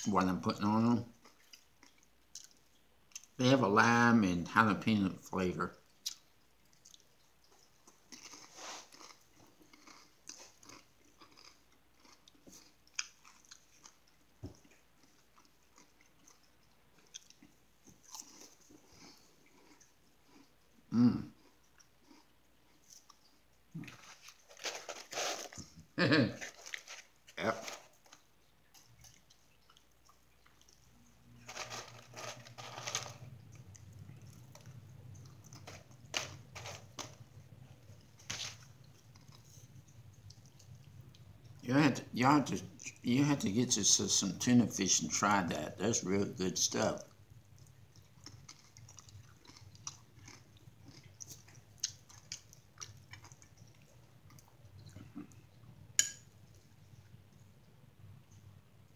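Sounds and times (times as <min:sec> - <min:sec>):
low steady hum: 0:00.0 - 0:58.9
person chewing crunchy chips: 0:05.9 - 0:41.6, 0:46.6 - 0:56.9.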